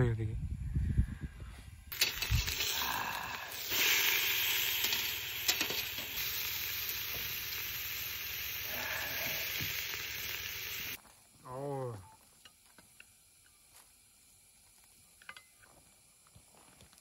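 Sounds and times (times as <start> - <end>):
meat sizzling on grill: 1.9 - 11.0.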